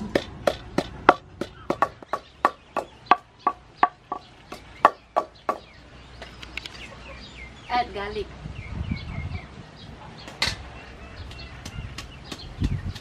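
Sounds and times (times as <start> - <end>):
pestle pounding in wooden mortar: 0.0 - 5.7, 11.6 - 13.0.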